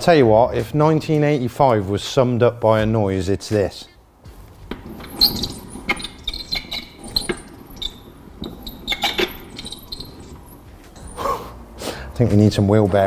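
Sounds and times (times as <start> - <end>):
wheel bearings squeaking and clicking: 4.6 - 11.4.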